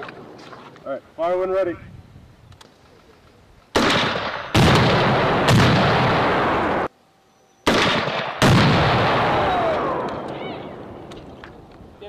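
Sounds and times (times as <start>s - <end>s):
rifle grenade blasts echoing: 3.8s - 6.9s, 7.7s - 11.1s.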